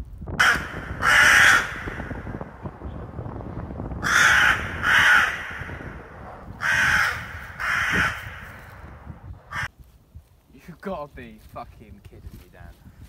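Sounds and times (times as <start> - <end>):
crow cawing: 0.4 - 2.3, 4.0 - 6.0, 6.6 - 8.9, 9.5 - 9.7.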